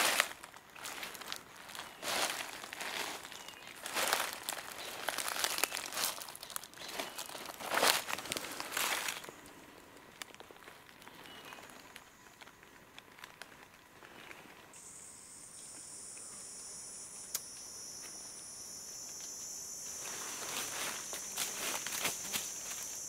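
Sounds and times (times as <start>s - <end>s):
footsteps crunching leaf litter: 0.0s - 9.5s, 19.2s - 23.0s
shrill insect drone: 14.8s - 23.0s.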